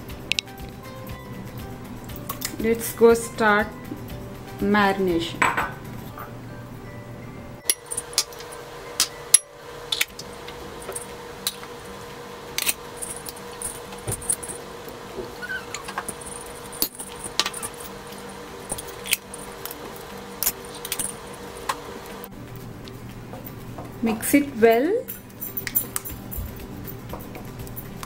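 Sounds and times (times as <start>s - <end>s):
ceramic bowls clinking: 5.2s - 6.4s, 7.6s - 11.6s.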